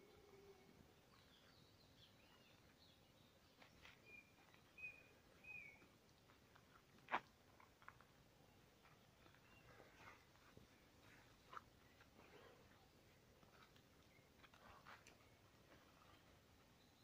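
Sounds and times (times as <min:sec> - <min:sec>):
faint bird chirps: 0:00.0 - 0:05.9, 0:08.4 - 0:13.2.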